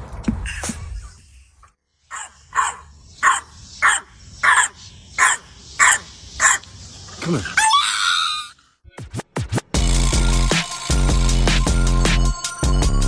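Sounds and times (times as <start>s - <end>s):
puppy barking: 2.1s - 6.6s.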